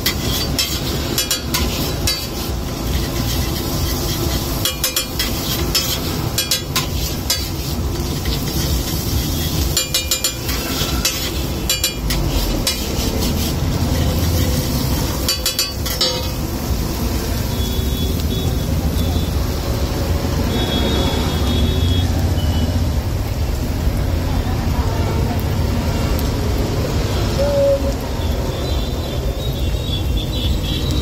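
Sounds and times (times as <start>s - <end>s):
metal spatula scraping on griddle: 0.0s - 17.1s
food frying in oil: 0.0s - 31.0s.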